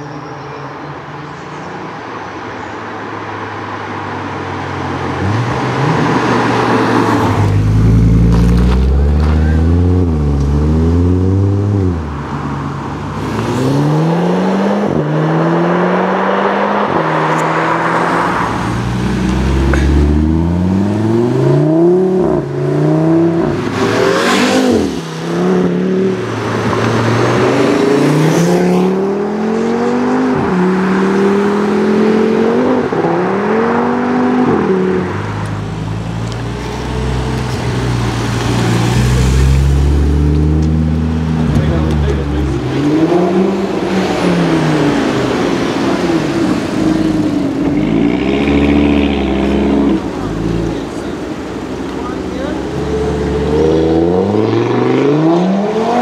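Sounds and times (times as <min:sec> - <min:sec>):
car engines accelerating hard: 0:00.9 - 0:56.0.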